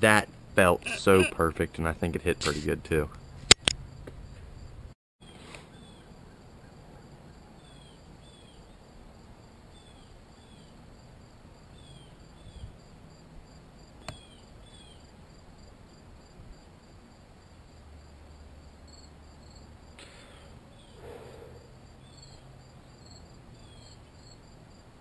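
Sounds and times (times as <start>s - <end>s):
insect chorus: 2.5s - 4.9s, 5.8s - 25.0s
sharp click: 3.5s - 3.8s.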